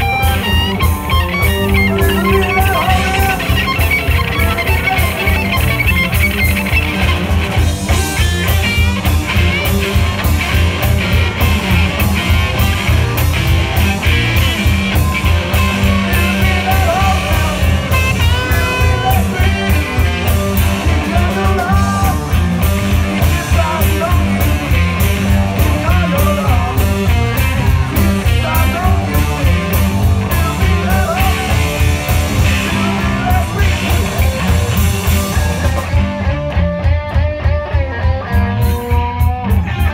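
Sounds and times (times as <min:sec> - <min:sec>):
blues-rock band playing loud: 0:00.0 - 0:39.9
lead guitar bending notes: 0:00.0 - 0:39.9.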